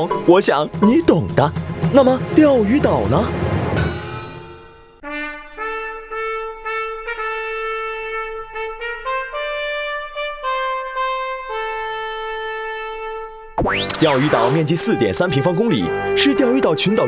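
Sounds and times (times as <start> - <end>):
trumpet playing slow melody: 5.0 - 13.6.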